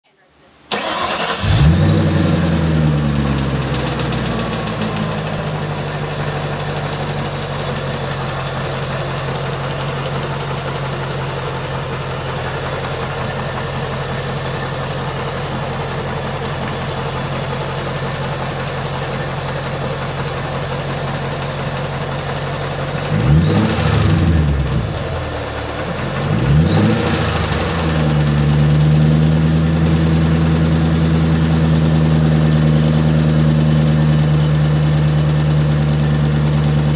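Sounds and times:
engine revving: 0.7s - 5.4s, 23.1s - 25.4s, 26.0s - 31.5s
car engine idling: 0.7s - 36.9s.

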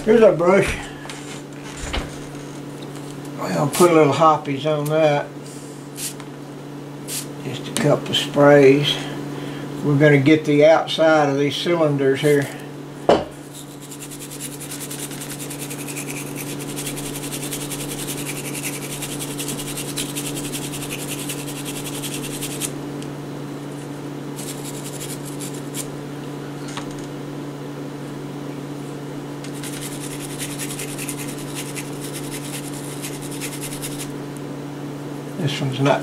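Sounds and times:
low electrical hum: 0.0s - 36.0s
brush scrubbing metal: 13.4s - 22.7s, 24.4s - 25.9s, 29.5s - 34.1s.

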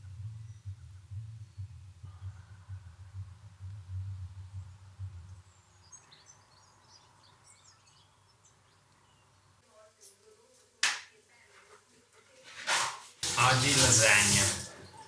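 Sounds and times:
low pulsing rumble: 0.0s - 5.8s
small birds chirping: 0.0s - 10.6s.

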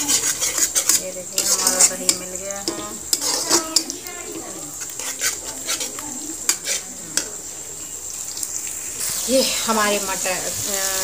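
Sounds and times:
metal spatula scraping pan: 0.0s - 7.4s
masala sizzling in oil: 0.0s - 11.0s.

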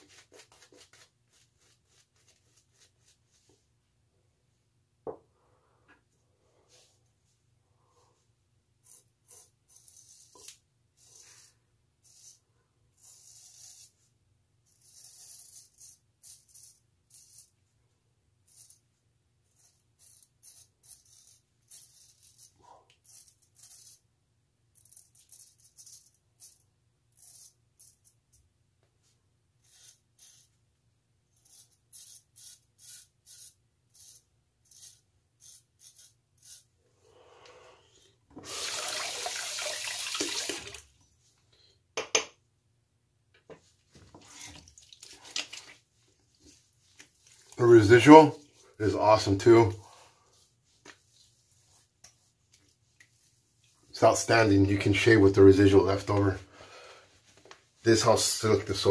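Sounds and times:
razor scraping stubble: 31.4s - 36.7s.

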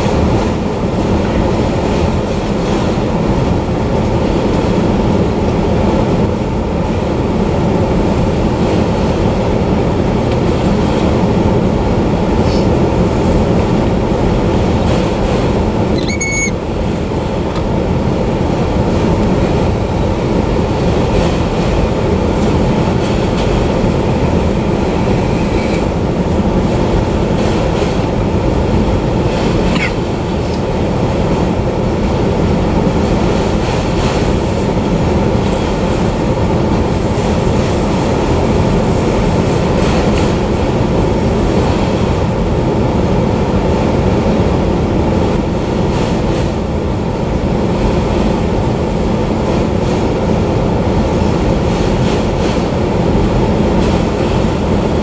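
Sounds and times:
steel wheels running over rails: 0.0s - 55.0s
short high squeal: 15.9s - 16.6s.

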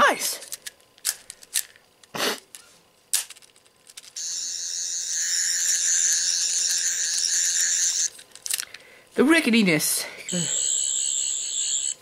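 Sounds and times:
toy electronic warbling buzz: 4.2s - 8.2s, 10.3s - 12.0s.

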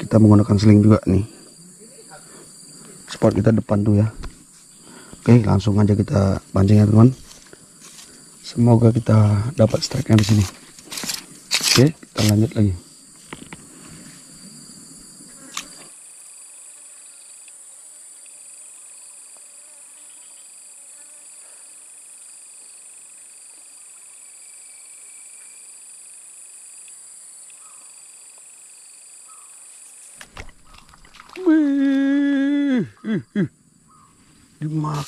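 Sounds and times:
insects trilling: 0.0s - 35.0s
rustling handling noise: 10.0s - 12.4s.

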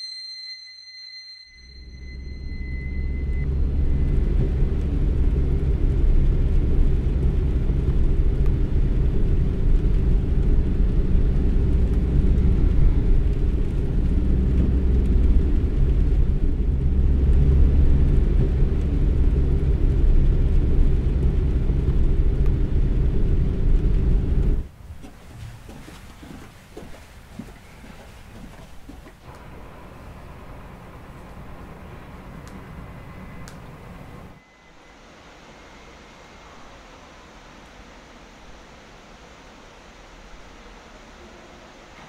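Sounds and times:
car engine and road noise: 1.9s - 34.4s.

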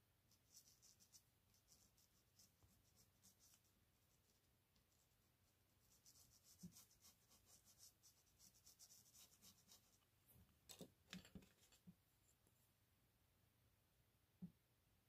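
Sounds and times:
brush scratching on paper: 0.3s - 5.2s, 5.8s - 10.0s.

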